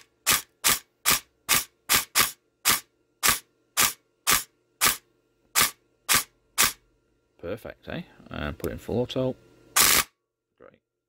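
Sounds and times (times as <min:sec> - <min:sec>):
airsoft gun shots: 0:00.0 - 0:05.0, 0:05.6 - 0:06.8, 0:09.8 - 0:10.1.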